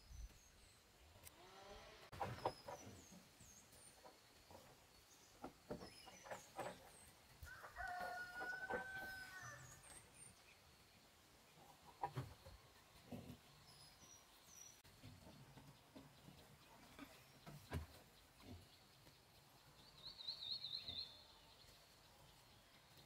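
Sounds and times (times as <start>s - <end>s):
small birds chirping: 0.0s - 1.3s, 2.1s - 23.0s
rooster crowing: 7.5s - 9.7s.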